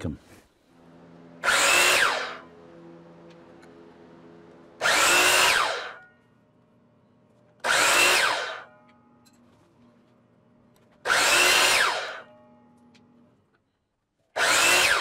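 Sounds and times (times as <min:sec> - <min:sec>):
miter saw motor whine: 0:00.8 - 0:06.1, 0:07.6 - 0:08.7, 0:11.0 - 0:12.4, 0:14.4 - 0:15.0.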